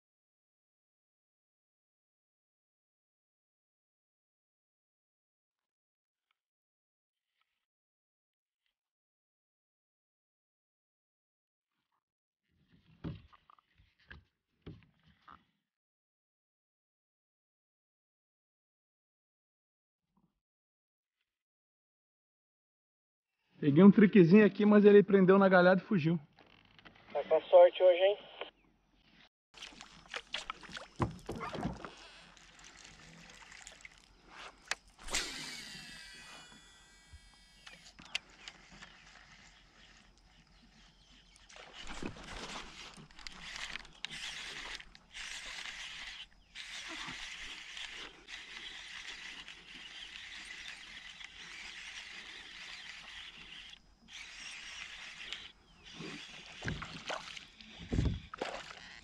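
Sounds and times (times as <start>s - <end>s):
fishing reel spool whirring: 31.9s - 59.0s
fishing reel cranking: 34.6s - 40.0s, 42.4s - 57.7s, 58.6s - 59.0s.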